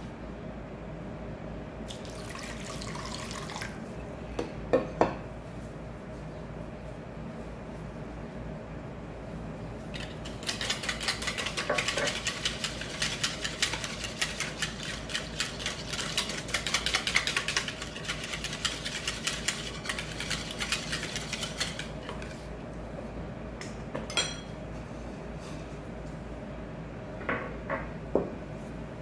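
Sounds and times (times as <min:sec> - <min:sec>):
whisk clicking in plastic bowl: 0:10.0 - 0:22.0.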